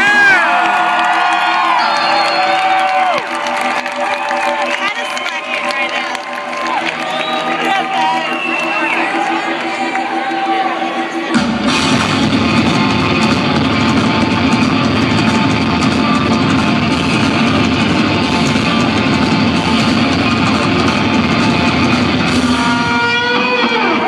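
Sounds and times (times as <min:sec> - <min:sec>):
distorted electric guitars: 0:00.0 - 0:24.0
live rock band playing: 0:03.3 - 0:24.0.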